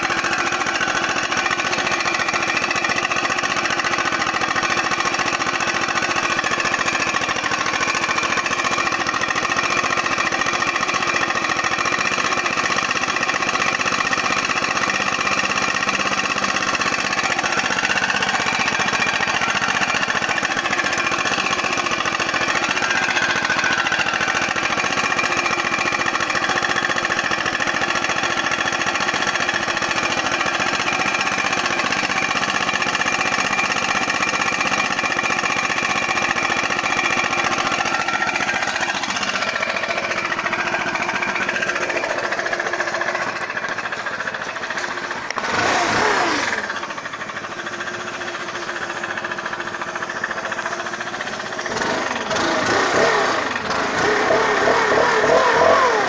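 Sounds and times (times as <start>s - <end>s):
leaf blower engine running and revving: 0.0s - 56.0s.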